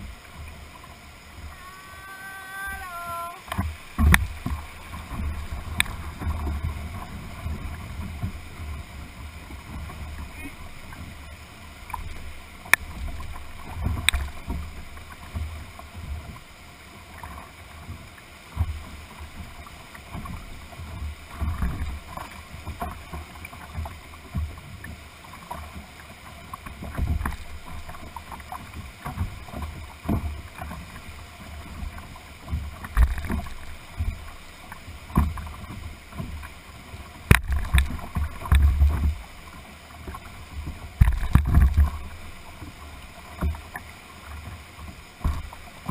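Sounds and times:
whitewater rapids rushing: 0.0s - 15.9s
water slapping boat hull: 0.0s - 45.9s
boat knocking and thumping: 2.7s - 11.2s, 11.8s - 16.5s, 17.1s - 45.9s.

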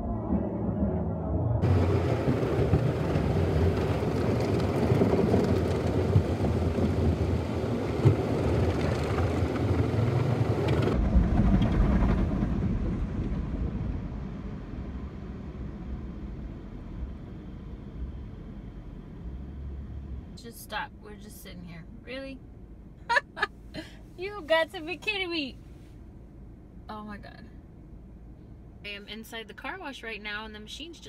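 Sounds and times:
low hum: 0.0s - 29.2s
car wash brushes and water: 1.6s - 11.0s.

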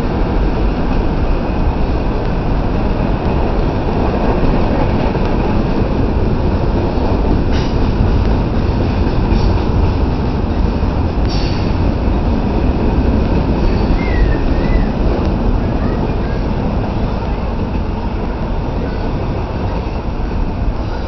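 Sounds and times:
train wheels rumbling on rails: 0.0s - 21.0s
wheel squeal: 13.7s - 15.0s.

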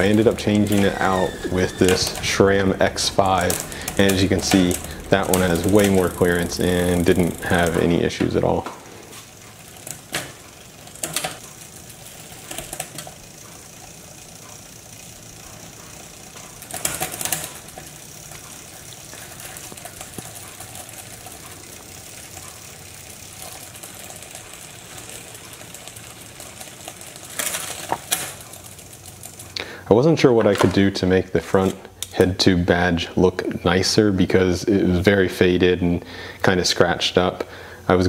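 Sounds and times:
bicycle chain clattering: 0.0s - 29.6s
bicycle chain ticking whir: 0.0s - 38.0s.

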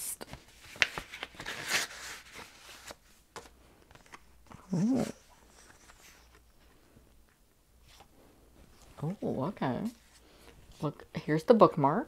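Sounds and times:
paper rustling: 0.2s - 6.8s
person humming hmm: 4.6s - 5.2s.

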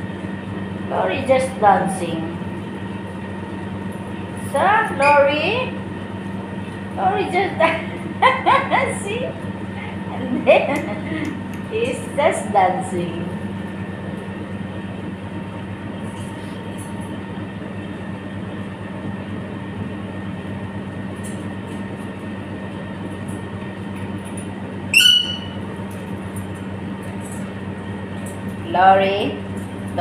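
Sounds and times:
mechanical hum: 0.0s - 30.0s
parrot squawk: 24.9s - 25.6s.

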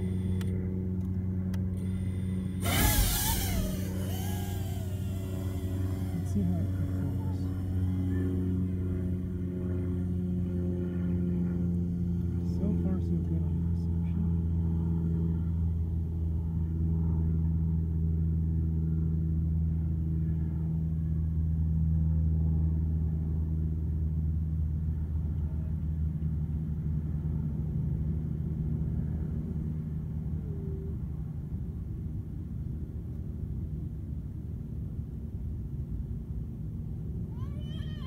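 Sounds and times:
model aircraft propeller droning: 0.0s - 38.0s.

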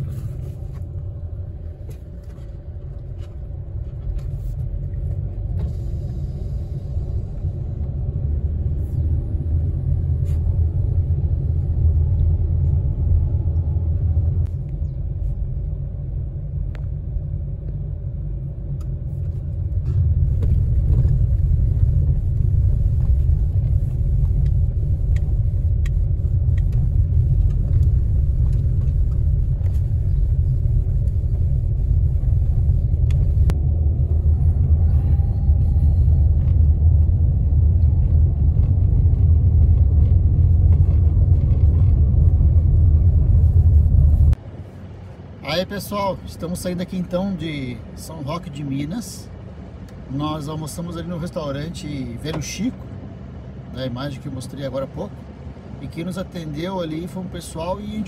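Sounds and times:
car driving over cobblestones: 15.8s - 44.5s.

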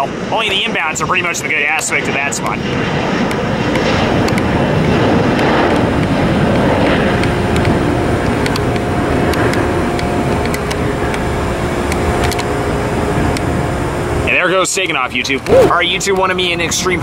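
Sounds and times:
faint steady whine: 0.0s - 17.0s
jet engines roaring at takeoff: 0.0s - 17.0s.

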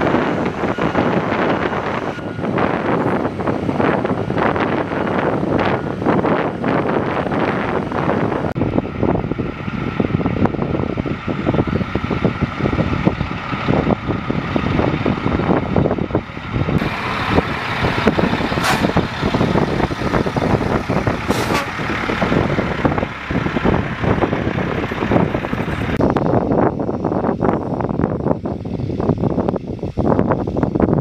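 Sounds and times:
truck diesel engine running: 0.0s - 30.7s.

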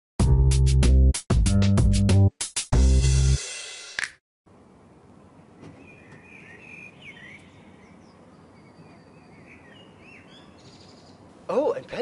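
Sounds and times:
distant outdoor noise: 4.5s - 12.0s
small birds chirping: 5.4s - 12.0s.

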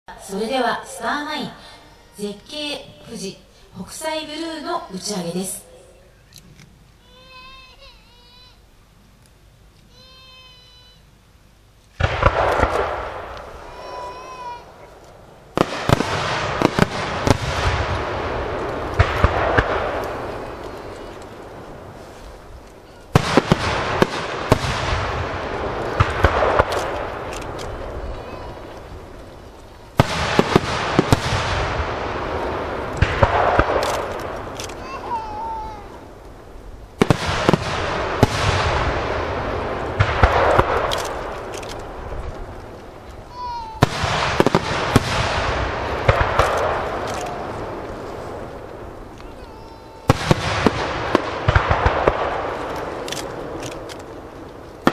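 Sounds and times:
rush of firework noise: 11.9s - 54.9s
firework shell bursts booming: 12.0s - 14.6s, 15.6s - 29.2s, 30.0s - 35.1s, 37.0s - 42.1s, 43.8s - 49.1s, 50.0s - 53.9s
sharp firework bangs: 12.0s - 14.7s, 15.5s - 36.2s, 37.0s - 42.6s, 43.5s - 54.9s.

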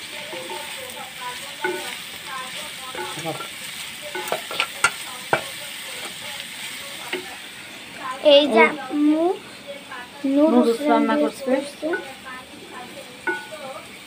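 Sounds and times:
vegetables sizzling in a pan: 0.0s - 14.0s
spatula knocking against pan: 0.2s - 0.9s, 1.6s - 2.1s, 2.8s - 6.2s, 7.0s - 7.3s, 11.8s - 12.3s, 13.2s - 13.6s.

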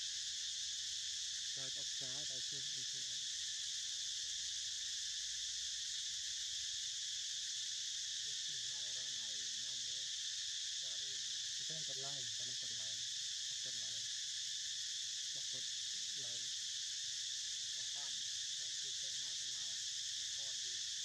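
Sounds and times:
insect chorus drone: 0.0s - 21.0s
faint voices talking: 10.8s - 13.0s, 17.8s - 19.8s.

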